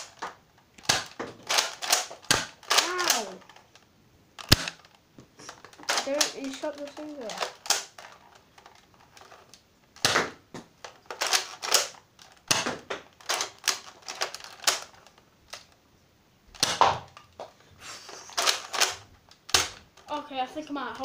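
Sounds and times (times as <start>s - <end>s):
toy dart blaster firing: 0.8s - 3.4s, 4.4s - 4.8s, 10.0s - 10.4s, 11.2s - 13.0s, 16.6s - 17.1s.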